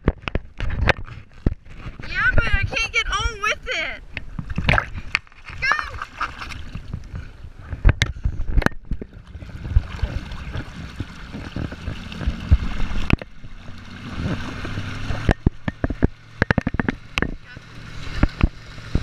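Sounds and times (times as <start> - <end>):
boat engine hum: 0.0 - 19.0
water rushing along a hull: 0.0 - 19.0
water slapping a board: 4.3 - 7.1, 7.8 - 19.0.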